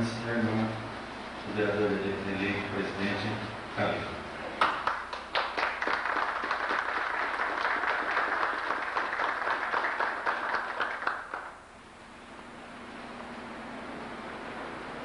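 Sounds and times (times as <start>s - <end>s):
audience applauding: 4.6s - 11.6s.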